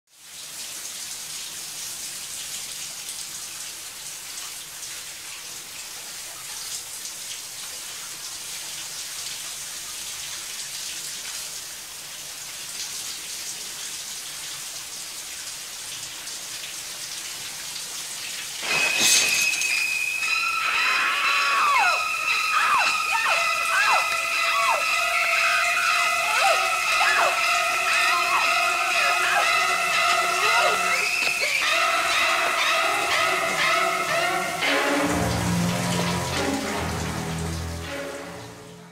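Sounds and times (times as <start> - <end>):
shower spray hissing: 18.4 - 38.2
screeching violin stabs: 18.6 - 36.9.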